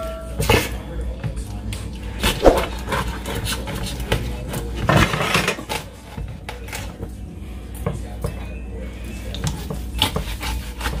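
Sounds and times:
knife rasping through chicken: 0:09.1 - 0:11.0.

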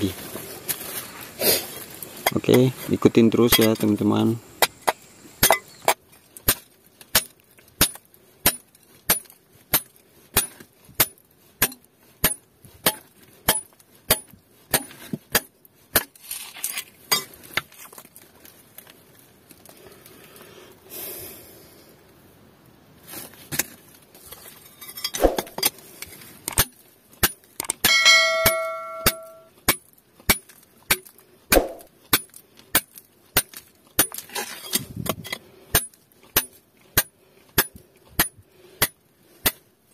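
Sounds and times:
hammer striking steel chisel: 0:26.5 - 0:29.8.

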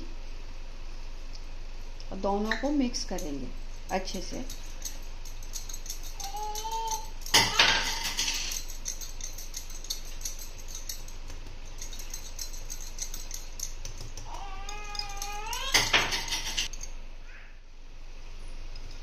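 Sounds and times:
whisk scraping glass bowl: 0:03.8 - 0:16.8.

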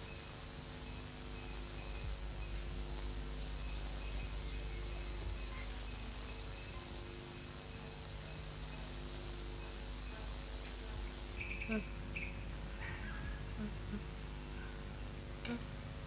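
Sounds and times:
insects chirping: 0:00.0 - 0:12.3
low steady hum: 0:00.0 - 0:16.0.

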